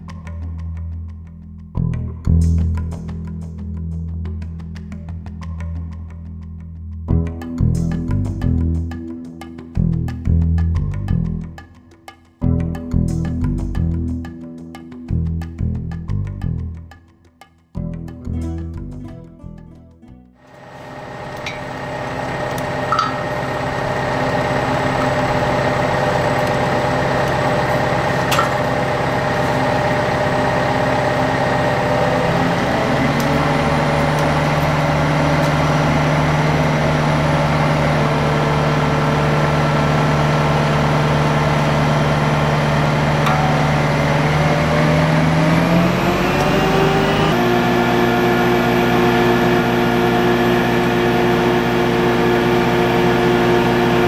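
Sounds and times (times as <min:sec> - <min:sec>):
crane diesel engine running: 0:20.5 - 0:54.0.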